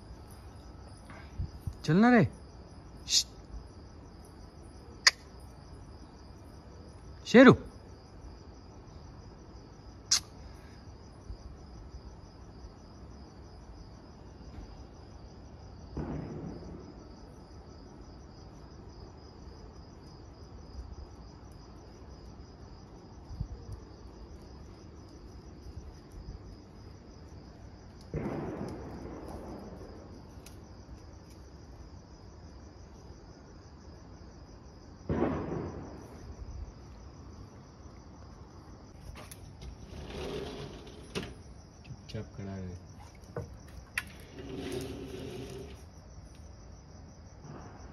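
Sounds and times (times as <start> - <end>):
crickets chirping: 0.0 - 47.9
sharp click: 5.0 - 5.3, 10.1 - 10.3
short rushes of noise: 39.8 - 41.4, 44.0 - 45.8.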